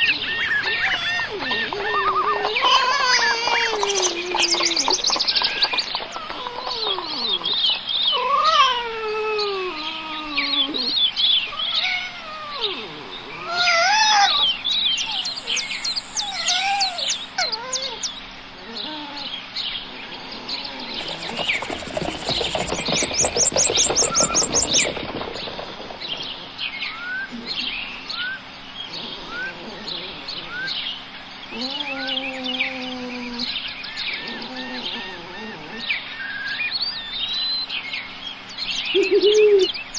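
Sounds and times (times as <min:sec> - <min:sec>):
birds chirping: 0:00.0 - 0:08.2, 0:09.8 - 0:39.9
falling mewing bird calls: 0:00.0 - 0:30.9
rasping rattling buzz: 0:21.0 - 0:26.0.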